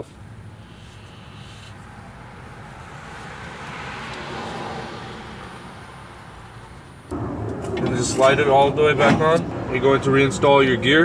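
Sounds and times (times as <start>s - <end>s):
vehicle passing: 0.1s - 11.0s.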